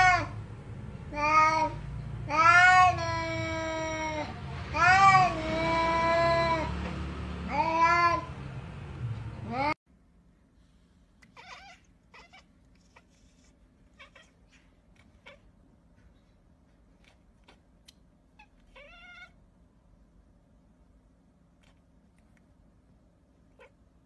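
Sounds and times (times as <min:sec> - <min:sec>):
cat meowing faintly: 0:11.3 - 0:15.5.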